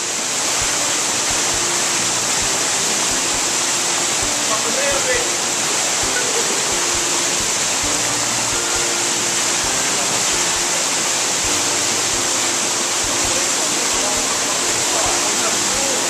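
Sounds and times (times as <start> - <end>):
waterfall rushing: 0.0 - 16.0.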